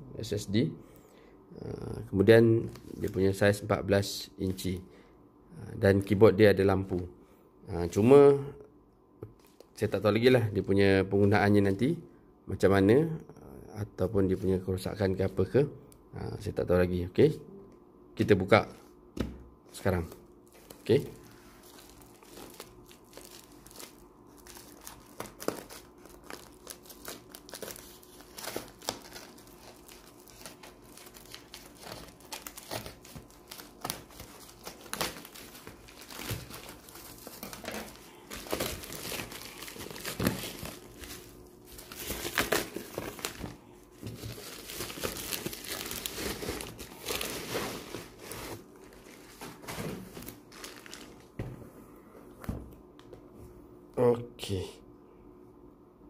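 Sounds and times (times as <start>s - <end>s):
plastic mailer crinkling and tearing: 20.0s - 51.4s.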